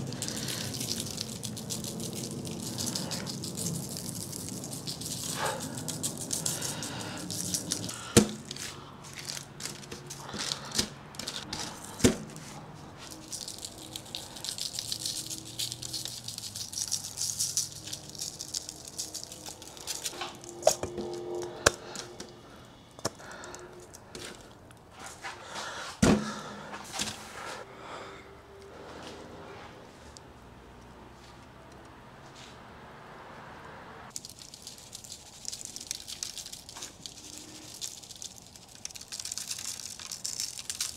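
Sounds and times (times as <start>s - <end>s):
spice granules rattling in jar: 0.0s - 12.0s, 13.0s - 22.1s, 34.1s - 40.9s
granules pattering onto meat: 0.0s - 22.1s, 34.1s - 40.9s.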